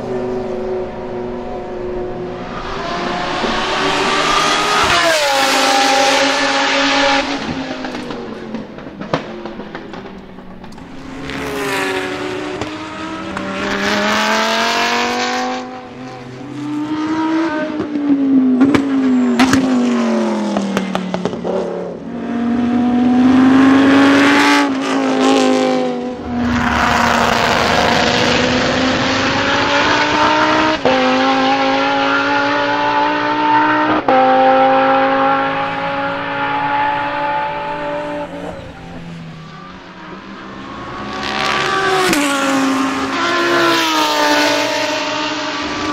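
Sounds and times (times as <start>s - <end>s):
race car engine revving: 0.0s - 45.9s
exhaust pops: 7.3s - 11.0s.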